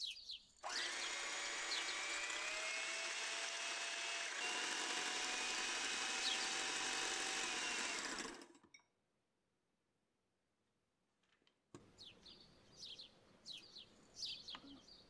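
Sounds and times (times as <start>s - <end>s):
electric hand mixer whirring: 0.6s - 8.6s.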